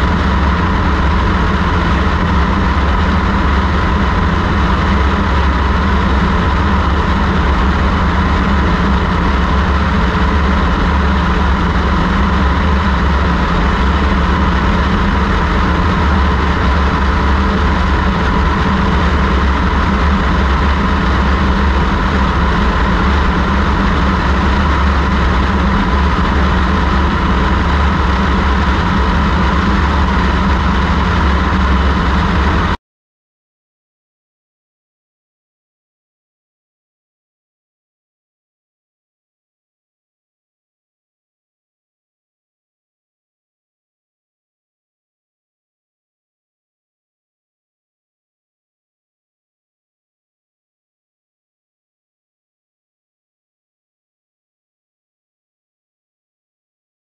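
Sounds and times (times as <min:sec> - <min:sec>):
light aircraft engine drone: 0:00.0 - 0:32.8.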